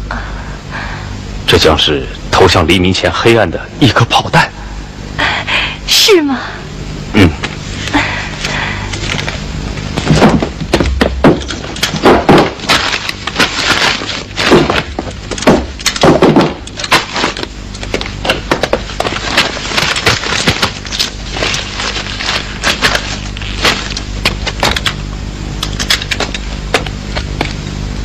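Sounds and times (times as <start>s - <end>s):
packets rustling and clicking: 8.4s - 27.6s
heavy thumps of crate lid: 10.0s - 12.7s, 14.5s - 16.6s.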